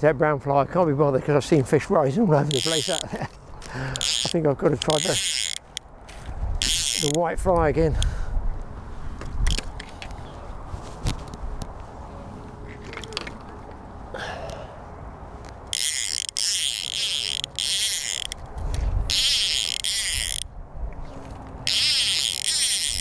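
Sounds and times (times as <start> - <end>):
fly reel clicking as line pulls: 2.5 - 3.2, 4.0 - 5.8, 6.6 - 7.3, 15.7 - 20.5, 21.6 - 23.0.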